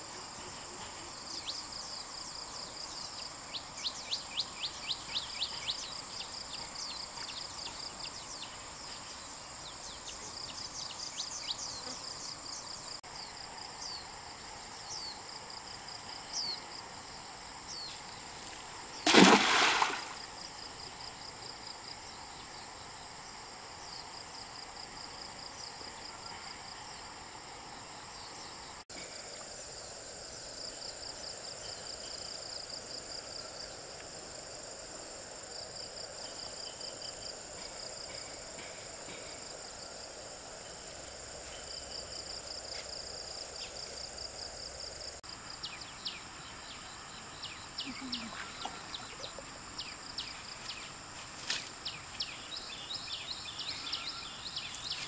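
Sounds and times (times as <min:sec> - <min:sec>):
quick cricket chirps: 0:00.0 - 0:55.0.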